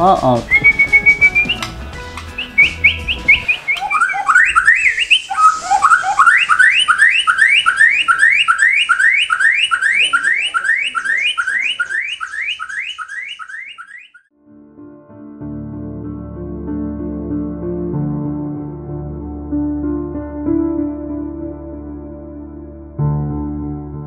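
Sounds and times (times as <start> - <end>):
bird singing whistled notes: 0.4 - 14.3.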